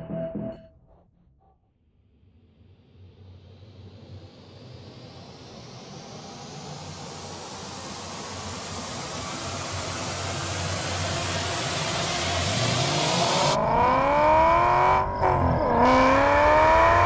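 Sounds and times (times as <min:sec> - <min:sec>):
vehicle approaching: 0:11.8 - 0:17.0.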